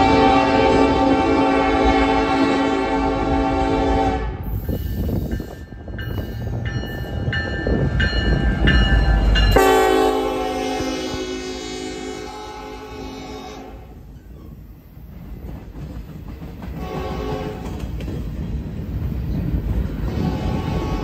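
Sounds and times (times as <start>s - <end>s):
locomotive air horn: 0.0s - 4.5s, 9.6s - 14.0s, 16.8s - 17.7s, 20.2s - 21.0s.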